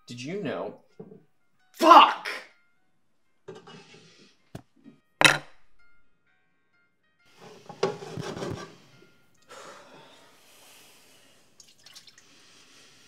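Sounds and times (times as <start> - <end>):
cloth scrubbing a pot: 7.4 - 8.9
water running: 11.5 - 12.4.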